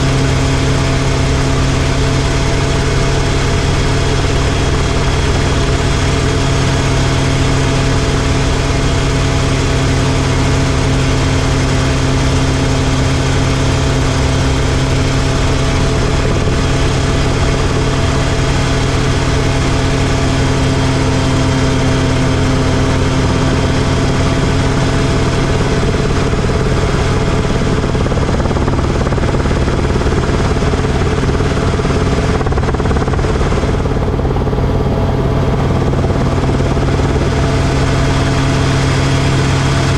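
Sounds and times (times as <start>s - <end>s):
helicopter engine and rotors droning: 0.0s - 39.9s.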